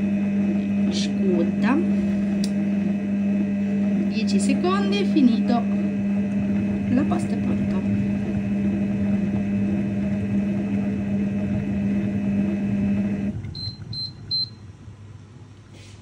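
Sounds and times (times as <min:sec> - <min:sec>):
kitchen machine humming: 0:00.0 - 0:15.8
short high beeps: 0:13.6 - 0:14.6.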